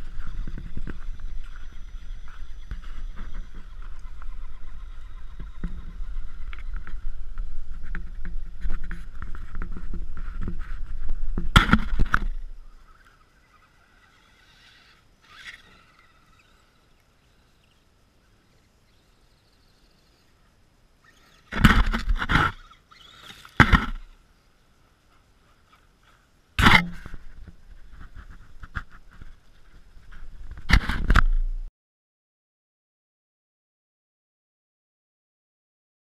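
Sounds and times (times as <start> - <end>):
toy truck motor and gear whine: 0.0 - 20.4, 21.0 - 24.2.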